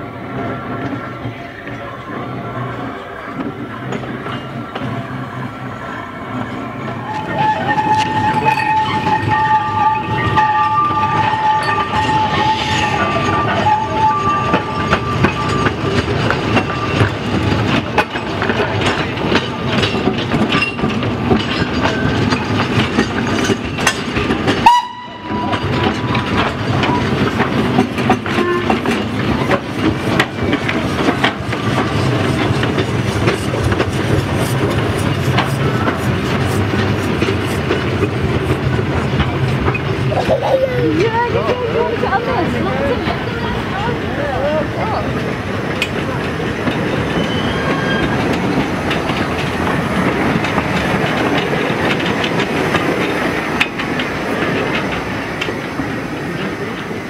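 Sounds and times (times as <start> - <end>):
train wheels clicking over rail joints: 0.2 - 57.0
steam whistle: 7.0 - 15.6, 24.6 - 25.6.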